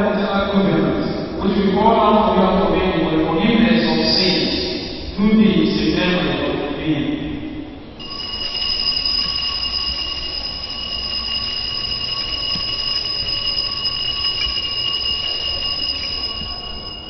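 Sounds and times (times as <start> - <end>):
altar bell ringing: 8.0 - 17.0.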